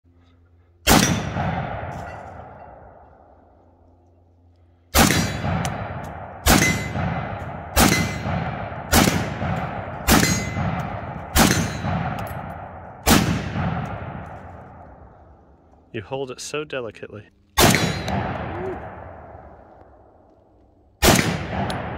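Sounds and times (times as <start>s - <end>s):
rifle shots: 0.8s - 3.0s, 4.9s - 15.2s, 17.6s - 20.2s, 21.0s - 21.9s.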